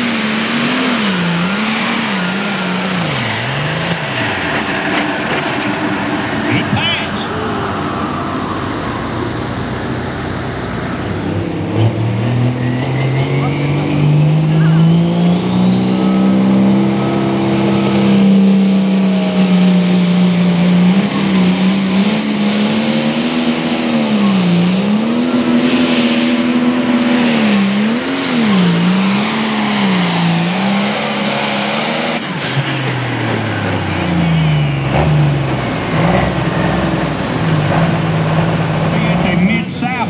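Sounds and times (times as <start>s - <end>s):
diesel engine at full throttle: 0.0s - 40.0s
turbo whistle: 15.4s - 24.8s.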